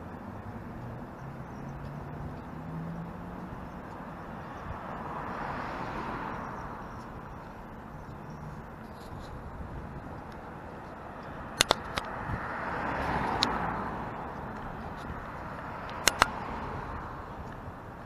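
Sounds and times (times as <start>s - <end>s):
car passing: 0.0s - 18.0s
street noise: 0.0s - 18.0s
sharp clicks: 11.1s - 12.2s, 15.8s - 16.6s.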